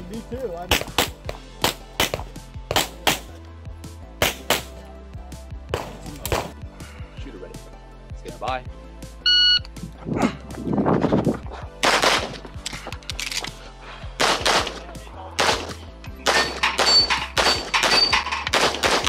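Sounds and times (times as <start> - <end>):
pistol shots: 0.7 - 3.3, 4.2 - 4.7, 11.8 - 12.4, 14.2 - 14.8, 15.4 - 19.0
shot timer beep: 9.3 - 9.7.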